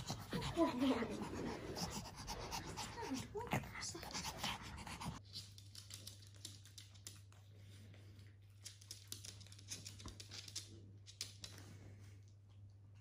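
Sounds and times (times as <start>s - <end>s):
dog claws clicking on floor: 5.2s - 11.9s.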